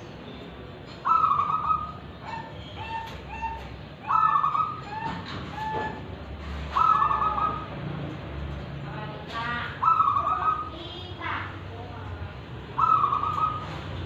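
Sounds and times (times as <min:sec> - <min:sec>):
dove cooing: 0:01.0 - 0:07.7, 0:09.8 - 0:10.8, 0:12.8 - 0:14.0.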